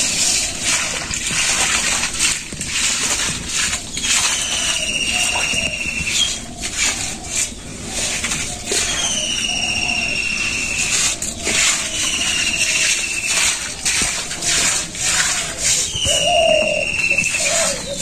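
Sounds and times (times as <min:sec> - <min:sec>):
broom swishing on wet concrete: 0:00.0 - 0:18.0
bird whistle: 0:04.0 - 0:06.4, 0:08.8 - 0:13.4, 0:15.8 - 0:18.0.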